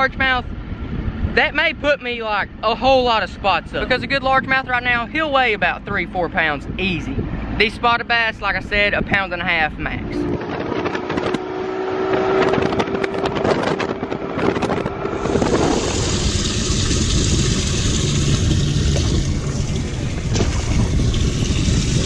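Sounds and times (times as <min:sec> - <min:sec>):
wind on microphone: 0:00.0 - 0:22.0
outboard motor running: 0:10.6 - 0:22.0.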